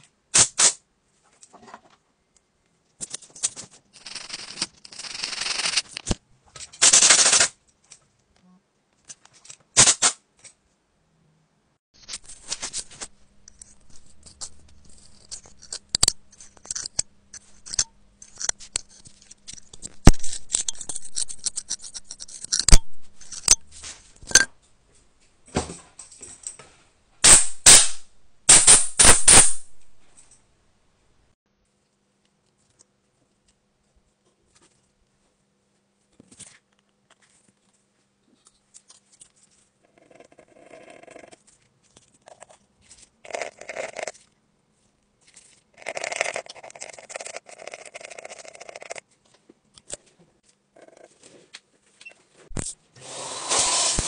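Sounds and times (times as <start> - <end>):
metal pick scraping: 12.1 - 24.5.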